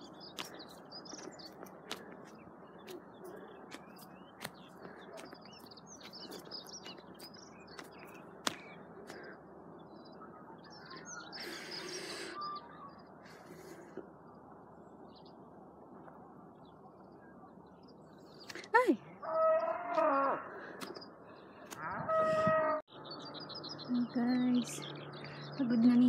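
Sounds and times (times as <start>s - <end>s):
steady outdoor hiss: 0.0s - 19.2s
small birds chirping: 0.0s - 26.0s.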